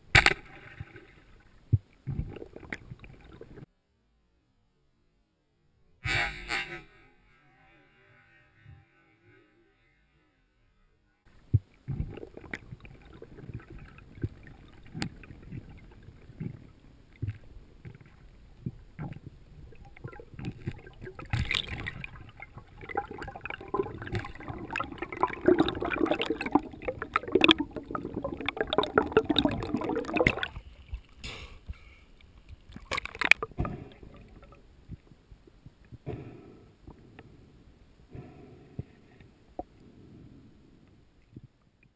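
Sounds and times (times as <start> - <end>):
water churning and bubbling: 0.0 - 3.7, 11.3 - 31.2, 32.4 - 37.2
muffled underwater knocks and clicks: 11.4 - 31.8, 32.4 - 37.3.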